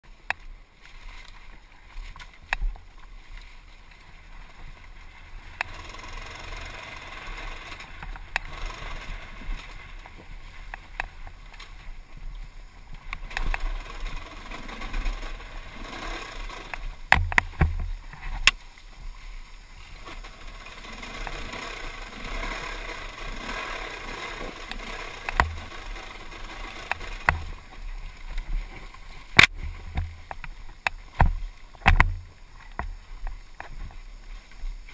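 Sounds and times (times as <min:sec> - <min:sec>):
tyres rolling on dirt: 0:00.0 - 0:34.9
bike chassis knocking on bumps: 0:16.7 - 0:18.6, 0:23.4 - 0:27.8, 0:29.4 - 0:33.7.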